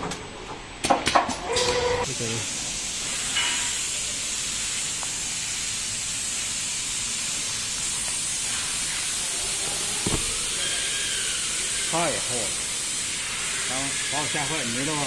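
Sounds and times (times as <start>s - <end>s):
steady background hiss: 2.1s - 15.0s
short low bump: 10.0s - 10.5s.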